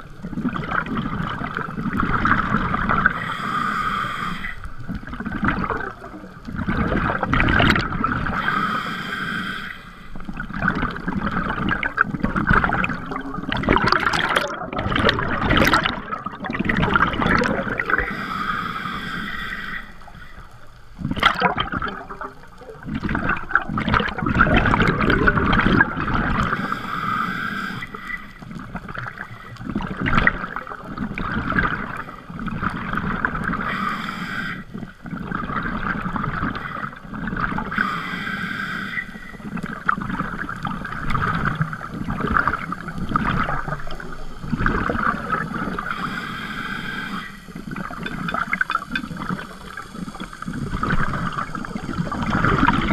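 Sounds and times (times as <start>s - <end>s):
gurgling exhaled bubbles: 0.0s - 38.4s, 39.0s - 52.9s
hissing regulator inhale: 2.8s - 5.1s, 8.2s - 10.4s, 17.6s - 20.9s, 26.4s - 29.8s, 33.4s - 35.2s, 36.3s - 39.9s, 40.5s - 52.9s.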